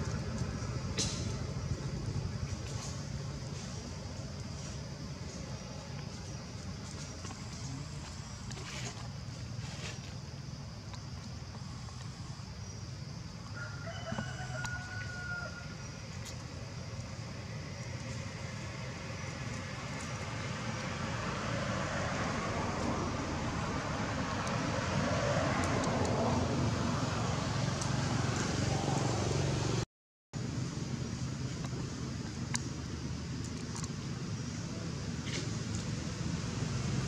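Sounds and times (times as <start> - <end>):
rooster crowing: 13.5 - 15.9.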